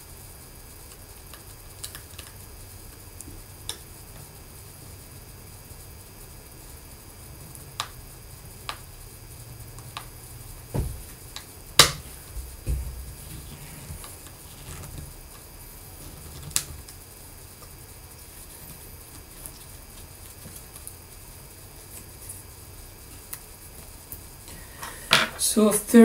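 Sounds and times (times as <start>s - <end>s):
dull thumps: 10.7s - 15.2s.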